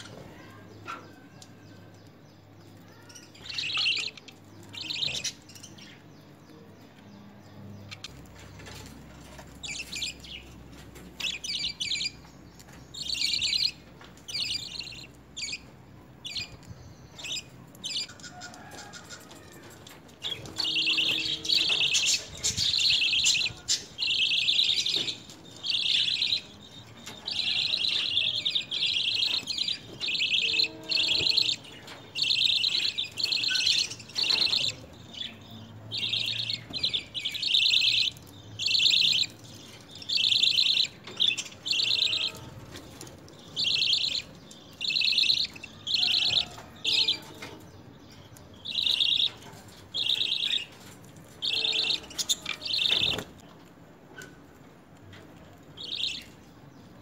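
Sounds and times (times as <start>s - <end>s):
budgerigars chirping: 20.3s - 47.5s, 48.4s - 53.4s, 55.8s - 56.4s.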